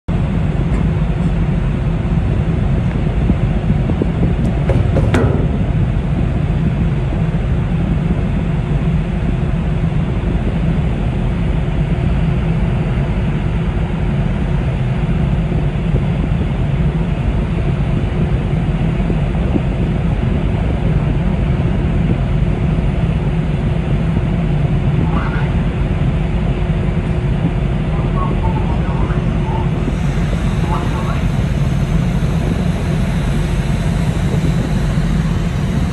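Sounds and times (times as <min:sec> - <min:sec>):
ship engines rumbling: 0:00.1 - 0:35.9
single knock: 0:04.6 - 0:05.6.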